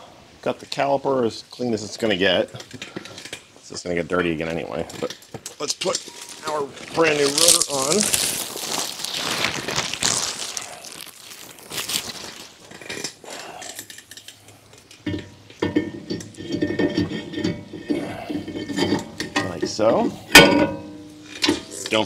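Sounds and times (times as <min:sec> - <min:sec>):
metal clinking and rustling: 0:04.2 - 0:08.4, 0:12.1 - 0:22.0.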